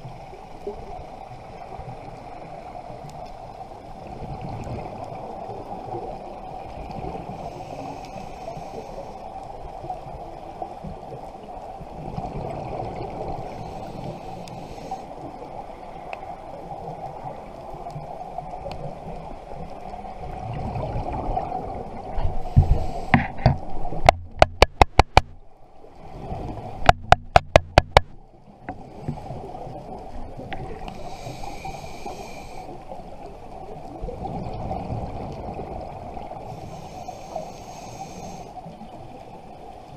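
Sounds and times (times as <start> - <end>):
underwater rumble and bubbles: 0.0 - 39.9
scuba regulator hiss: 7.3 - 9.3, 13.4 - 15.2, 22.3 - 23.4, 30.9 - 32.9, 36.4 - 38.7.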